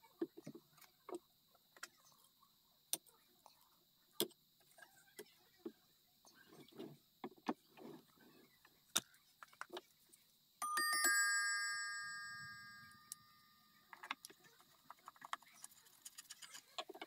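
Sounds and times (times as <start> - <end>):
clock chime bells ringing: 10.6 - 13.9.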